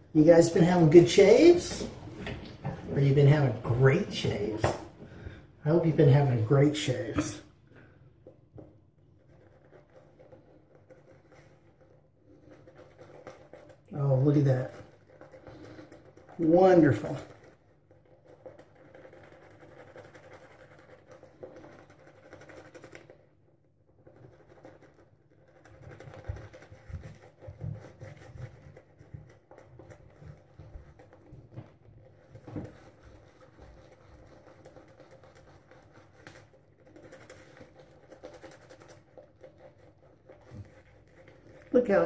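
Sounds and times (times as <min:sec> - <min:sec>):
shaving brush brushing lather: 0:12.6 - 0:23.1, 0:32.1 - 0:42.0.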